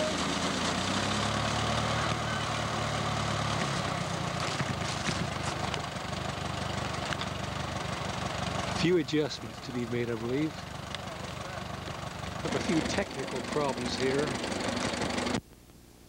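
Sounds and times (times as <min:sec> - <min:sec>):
tractor engine running: 0:00.0 - 0:15.4.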